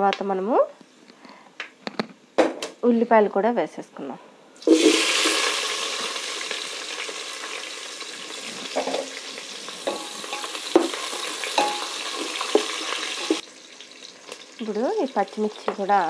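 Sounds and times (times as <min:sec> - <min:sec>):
onions sizzling in hot oil: 0:04.6 - 0:16.0.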